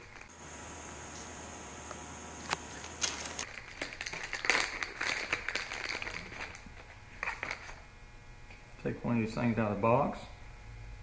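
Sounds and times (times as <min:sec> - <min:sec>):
plastic bag crinkling: 0:02.7 - 0:07.8.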